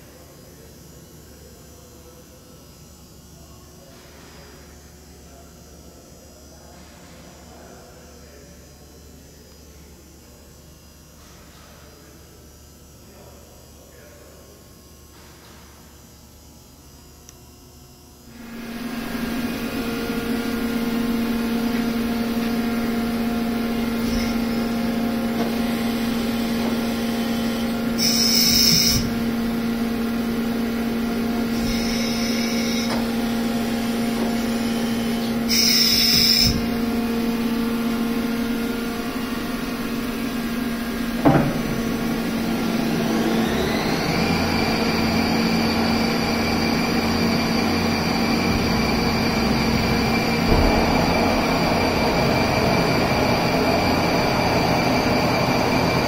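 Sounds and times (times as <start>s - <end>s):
lathe motors humming: 18.3s - 56.0s
spindle whine rising in pitch: 18.3s - 56.0s.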